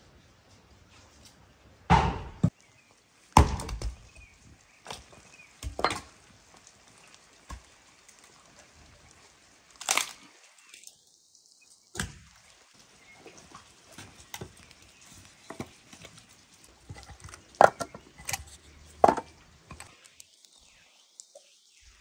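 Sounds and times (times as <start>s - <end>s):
axe striking wood: 1.9s - 2.5s, 3.4s - 4.0s
wood cracking: 3.4s - 8.5s, 9.6s - 10.8s, 13.6s - 20.6s
wood pieces clattering: 16.8s - 20.0s.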